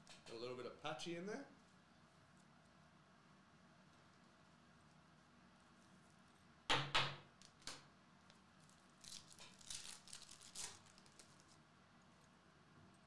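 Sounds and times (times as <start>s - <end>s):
foil crinkling and rustling: 8.4s - 11.7s
foil wrapper ripping: 8.6s - 11.6s.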